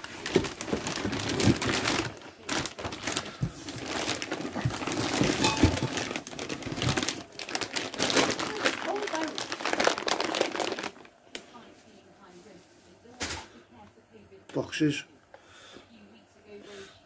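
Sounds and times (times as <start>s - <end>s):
plastic bags crinkling: 0.0s - 11.6s.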